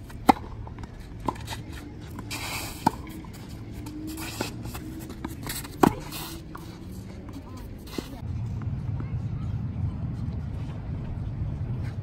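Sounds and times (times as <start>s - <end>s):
tennis ball hitting racket: 0.0s - 8.2s
tennis ball bouncing on court: 0.1s - 8.2s.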